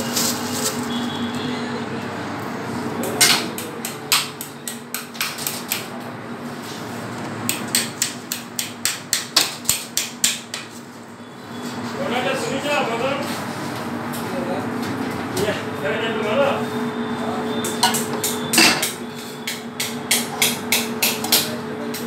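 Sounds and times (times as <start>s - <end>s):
kitchen equipment hum: 12.5s - 22.0s
metal kitchenware knocking: 17.8s - 19.0s.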